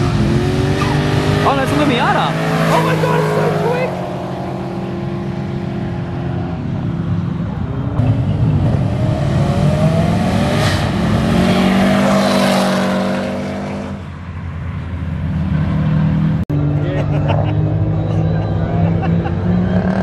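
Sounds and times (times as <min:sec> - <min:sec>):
car engine accelerating: 0:00.0 - 0:06.8.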